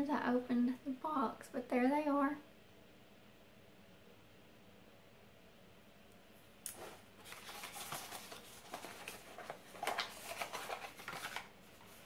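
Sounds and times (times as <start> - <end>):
packaging rustling and crinkling: 6.7 - 12.0.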